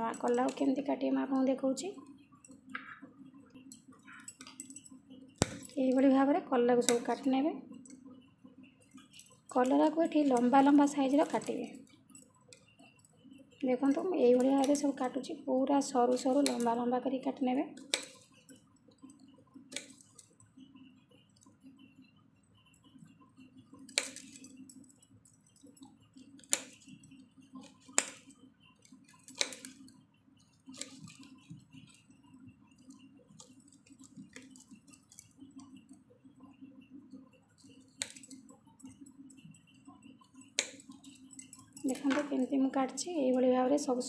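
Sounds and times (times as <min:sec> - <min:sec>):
blade clicking on stone countertop: 0:16.2 - 0:16.8, 0:17.8 - 0:20.3, 0:23.7 - 0:30.0, 0:32.8 - 0:35.7, 0:37.6 - 0:43.1.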